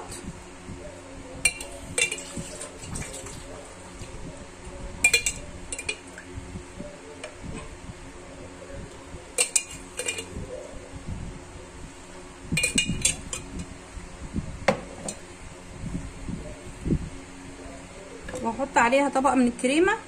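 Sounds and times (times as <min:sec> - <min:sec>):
metal spoon clinking against dish: 0:01.5 - 0:02.9, 0:05.0 - 0:06.1, 0:09.4 - 0:10.4, 0:12.6 - 0:13.7.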